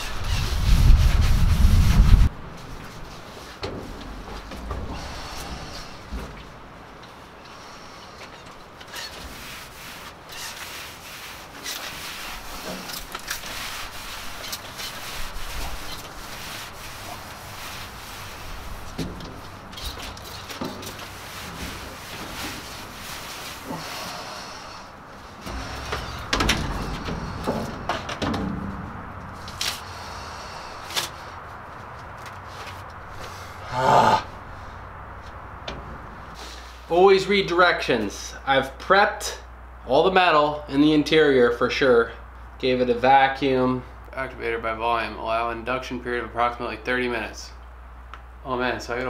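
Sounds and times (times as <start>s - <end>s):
rag scrubbing sheet metal: 0.0s - 2.3s, 8.9s - 31.2s
knocks and scuffs in metal box: 25.4s - 29.3s
person dropping onto metal floor: 25.6s - 29.0s
short hisses: 36.3s - 36.9s.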